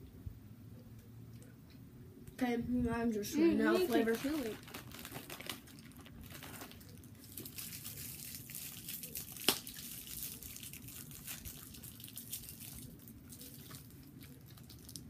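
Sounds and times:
candy wrappers crinkling: 3.7 - 15.0.

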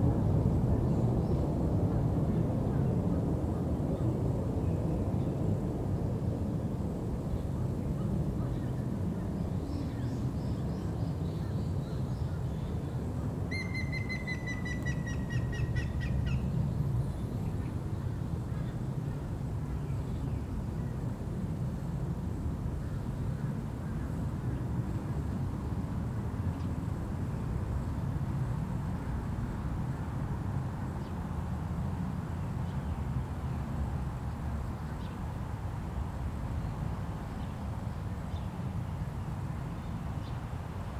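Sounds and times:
high bird chirps: 13.5 - 16.4
woodpecker whistled song: 13.5 - 16.4.

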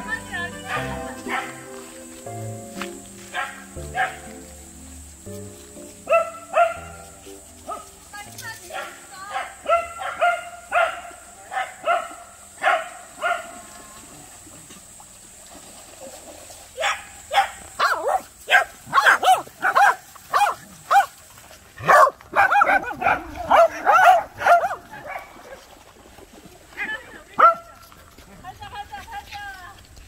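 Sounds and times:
dogs barking: 0.6 - 1.8, 3.2 - 4.5, 6.0 - 8.0, 8.6 - 13.6, 16.8 - 21.1, 21.8 - 25.6, 27.4 - 27.7.

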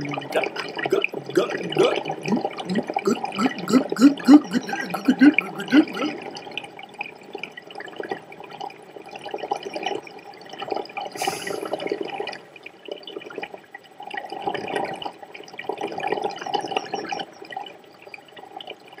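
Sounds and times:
water gurgling and dripping: 0.0 - 7.0
brief hiss: 11.2 - 11.8.

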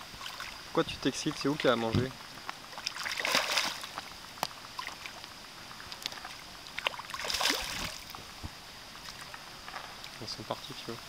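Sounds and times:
fish splashing in water: 2.6 - 8.2.

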